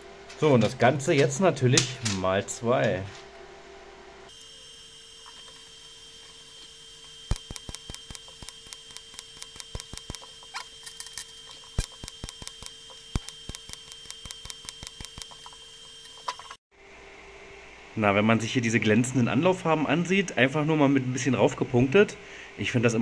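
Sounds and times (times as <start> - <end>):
welding clicks and crackles: 7.3 - 16.4.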